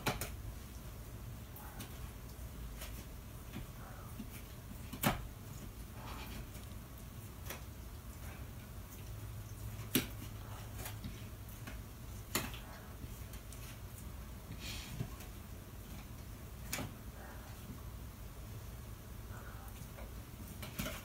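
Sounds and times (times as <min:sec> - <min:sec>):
dog gnawing a bone: 0:00.0 - 0:17.8, 0:19.4 - 0:21.0
low steady hum: 0:00.0 - 0:21.0.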